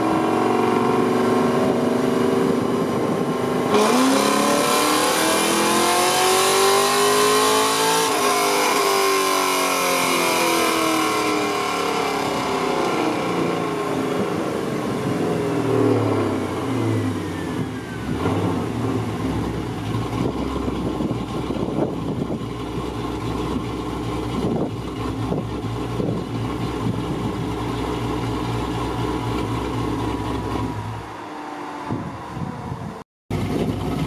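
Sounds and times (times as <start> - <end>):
car engine running: 9.8 - 31.2, 33.3 - 34.0.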